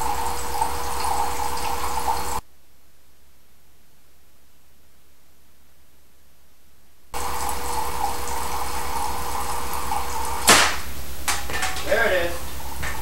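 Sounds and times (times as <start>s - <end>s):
water streaming into cans: 0.0s - 2.4s, 7.2s - 13.0s
sharp electric crack: 10.4s - 11.0s.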